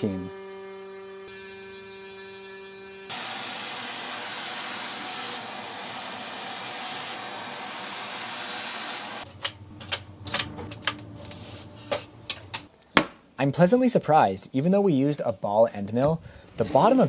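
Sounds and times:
handheld vacuum running: 0:03.0 - 0:09.2.

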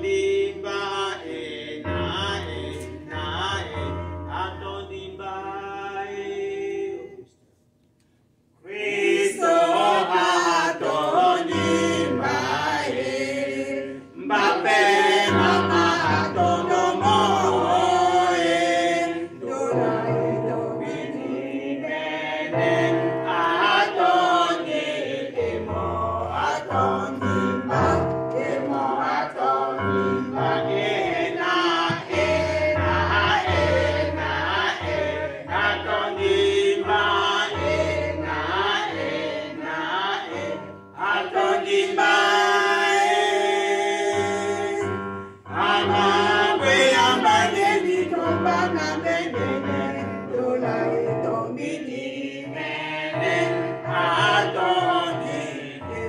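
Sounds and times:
choir singing a hymn: 0:00.0 - 0:07.3, 0:08.6 - 0:56.0.

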